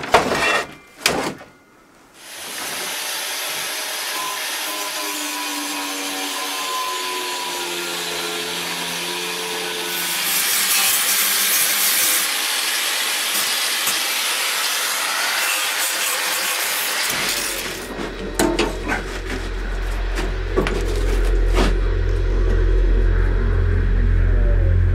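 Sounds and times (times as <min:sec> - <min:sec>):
angle grinder motor whine: 0:17.3 - 0:24.9.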